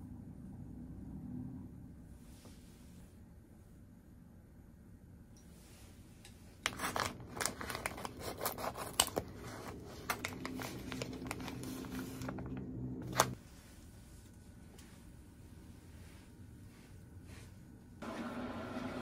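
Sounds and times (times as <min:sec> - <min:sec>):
plastic packaging crinkling: 0:06.6 - 0:13.4.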